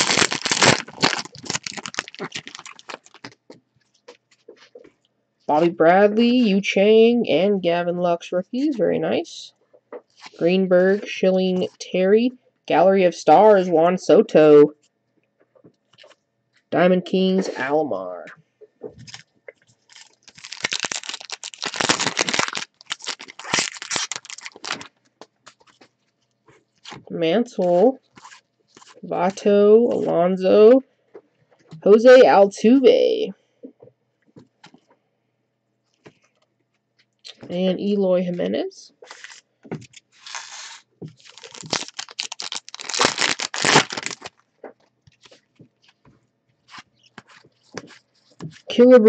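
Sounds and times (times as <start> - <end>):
foil wrapper crinkling: 0.0 - 4.5, 19.1 - 26.2, 28.0 - 29.0, 39.0 - 44.5.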